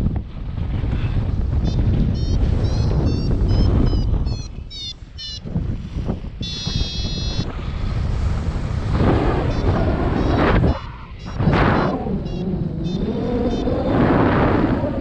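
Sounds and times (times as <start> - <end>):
wind buffeting microphone: 0.0 - 15.0
variometer beeps: 1.6 - 5.6, 6.4 - 7.5, 9.4 - 14.0.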